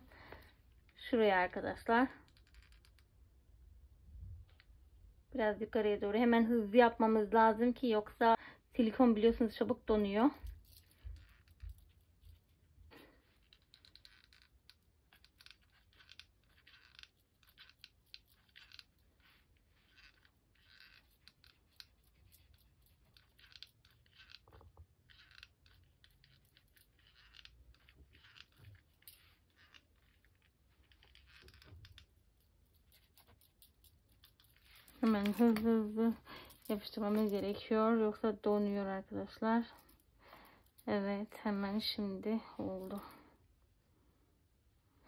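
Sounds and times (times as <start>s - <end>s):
hands scratching and clicking: 10.4s - 37.7s.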